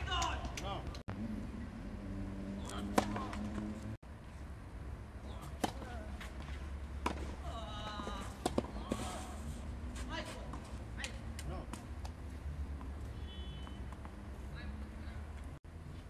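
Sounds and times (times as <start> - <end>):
racket hitting tennis ball: 2.6 - 3.8, 5.4 - 7.5, 8.1 - 12.2.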